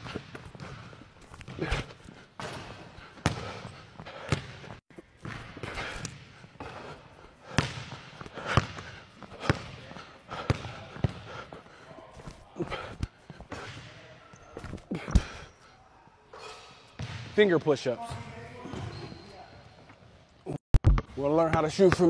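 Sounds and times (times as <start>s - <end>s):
basketball bouncing on wooden floor: 2.4s - 3.6s, 4.2s - 6.2s, 7.6s - 9.8s.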